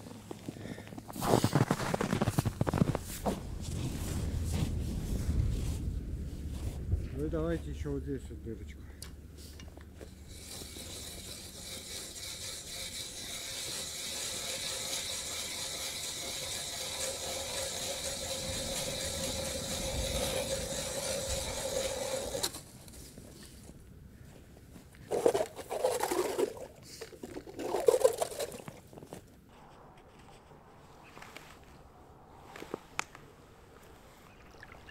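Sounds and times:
ice auger grinding through ice: 1.1 - 4.2, 10.0 - 22.7, 25.1 - 28.7
auger scraping in slushy hole: 1.1 - 5.8, 10.2 - 22.7.

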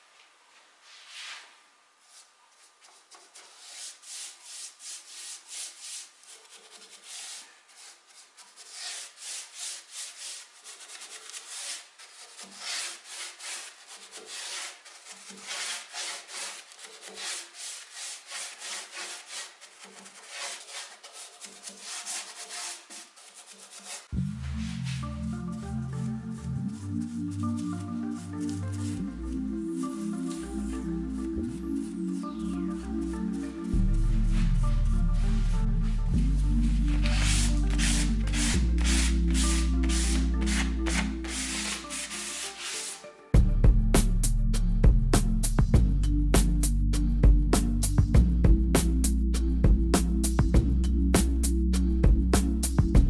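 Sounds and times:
paintbrush swishing on wood: 0.8 - 25.4, 31.7 - 43.0.

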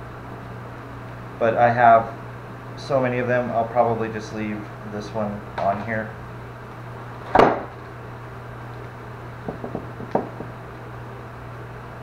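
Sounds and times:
steady low hum: 0.0 - 12.0
sharp knock on workbench: 7.3 - 7.7, 9.5 - 10.5.

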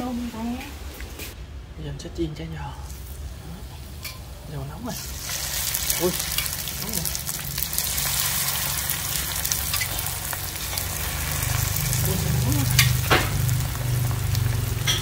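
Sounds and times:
steady low hum: 0.0 - 15.0
spring rolls sizzling in oil: 2.9 - 15.0.

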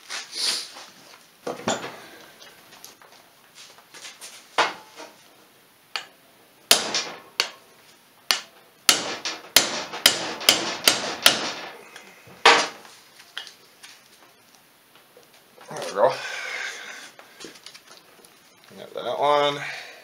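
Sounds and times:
hammer striking metal: 6.7 - 7.6, 8.3 - 11.8, 12.4 - 12.8.

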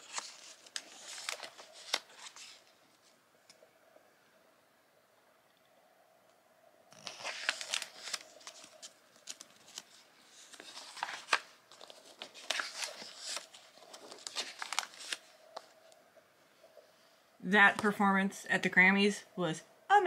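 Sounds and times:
magazine pages rustling: 0.0 - 3.6, 6.9 - 16.0.

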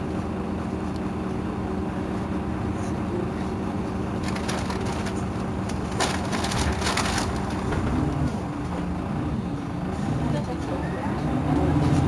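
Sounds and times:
bus diesel engine idling: 0.0 - 12.0.

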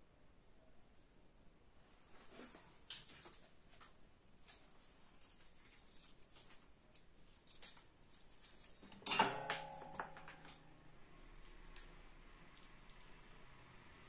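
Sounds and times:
metallic clink ringing: 8.9 - 10.6.

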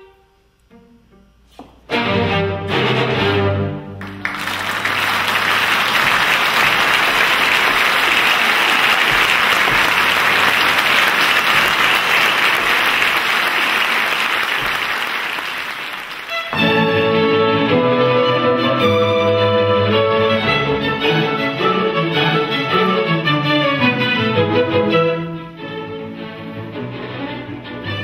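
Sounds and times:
bowed string music: 0.0 - 12.7, 16.0 - 28.0
audience applauding: 4.0 - 16.6.

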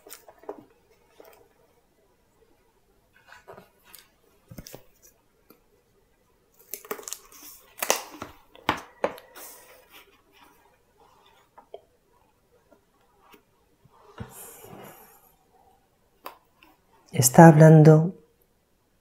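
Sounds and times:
book pages rustling: 3.1 - 5.6, 6.5 - 15.2.

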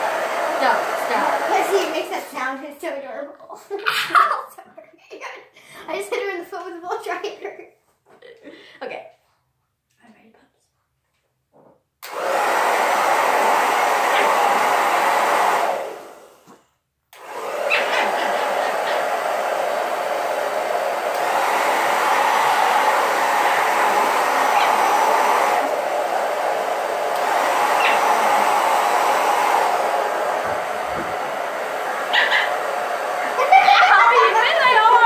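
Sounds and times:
hair dryer blowing: 0.0 - 3.0, 12.0 - 35.0.

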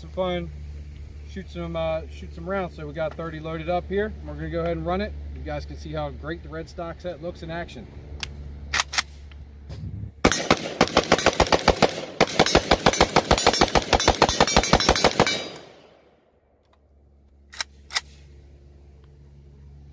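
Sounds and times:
rifle firing rapid shots: 10.2 - 16.0.

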